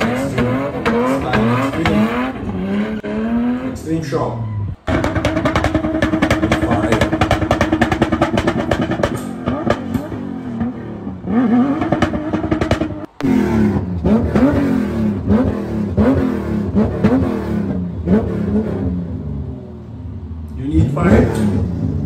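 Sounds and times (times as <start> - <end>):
exhaust pops: 0.0 - 2.8, 4.8 - 19.0
engine revving: 0.0 - 22.0.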